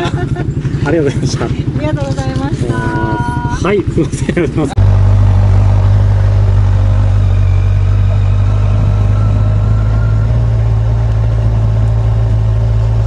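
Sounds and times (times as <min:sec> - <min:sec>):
motorcycle engine humming: 0:00.0 - 0:13.0.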